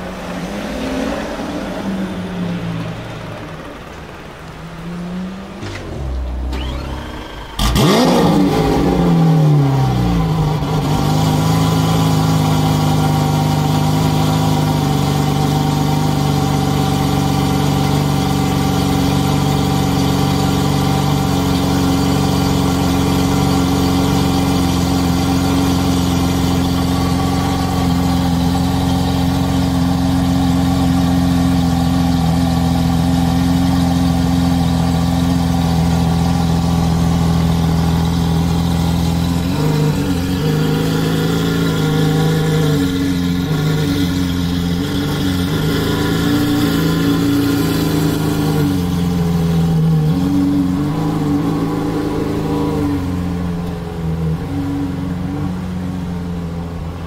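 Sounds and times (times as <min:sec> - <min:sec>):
sports car engine starting and idling: 0:00.0 - 0:57.0.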